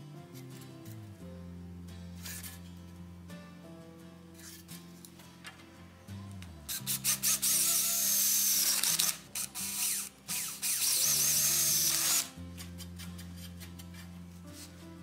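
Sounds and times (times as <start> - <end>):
background music: 0.0 - 15.0
power drill boring through wood: 6.8 - 12.3.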